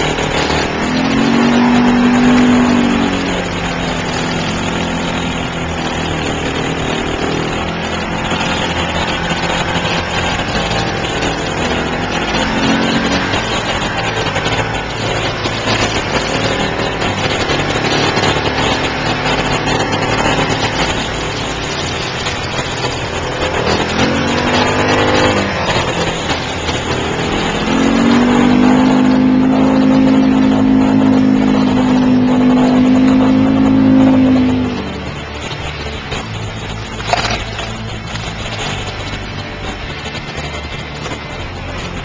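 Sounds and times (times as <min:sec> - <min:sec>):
off-road vehicle engine revving: 0:00.0 - 0:42.0
water splashing: 0:00.0 - 0:42.0.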